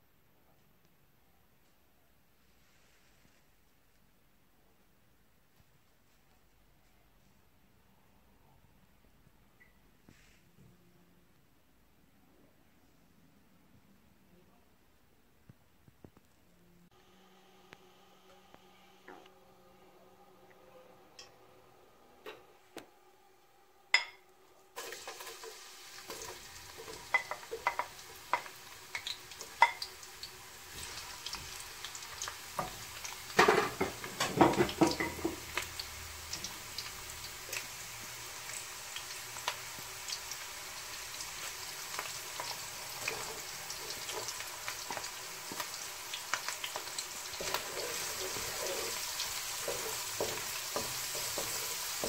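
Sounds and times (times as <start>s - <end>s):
oil crackling and popping: 24.8s - 37.8s, 38.5s - 52.0s
onions sizzling in oil: 24.8s - 52.0s
wooden spoon stirring: 46.4s - 52.0s.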